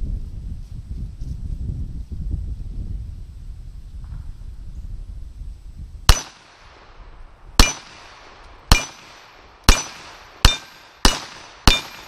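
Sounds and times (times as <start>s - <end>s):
pistol shots: 6.1s - 6.8s, 7.6s - 12.0s
short metallic ring: 9.7s - 11.0s.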